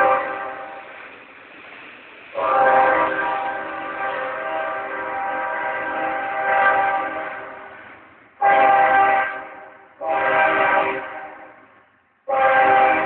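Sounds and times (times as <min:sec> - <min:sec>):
locomotive air horn blasts: 0:00.0 - 0:00.8, 0:02.4 - 0:07.7, 0:08.4 - 0:11.6, 0:12.3 - 0:13.0.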